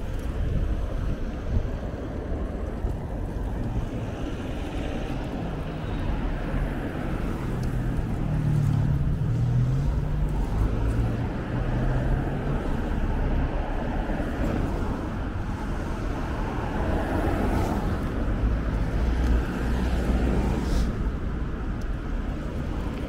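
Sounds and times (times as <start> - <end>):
city street traffic: 0.0 - 23.0
wind rumble on microphone: 0.0 - 23.0.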